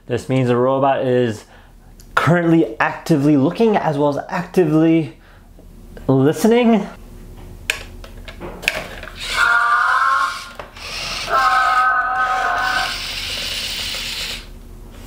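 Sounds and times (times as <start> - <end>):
robot horn-like electronic tones: 9.2 - 13.2
servo motors hissing: 9.2 - 14.5.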